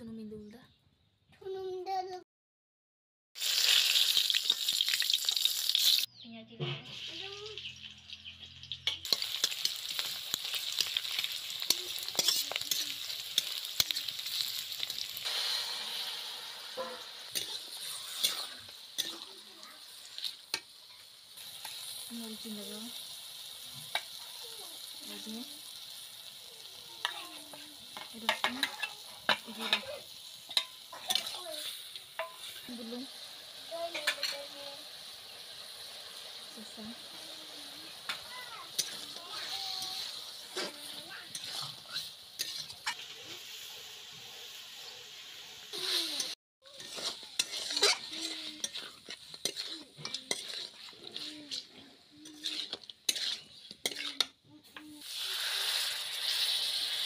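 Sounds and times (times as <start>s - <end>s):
pan sizzling: 3.4s - 57.0s
metal spoon scraping on metal: 8.8s - 15.5s, 16.8s - 19.4s, 28.0s - 32.7s, 38.8s - 43.0s, 45.8s - 54.4s.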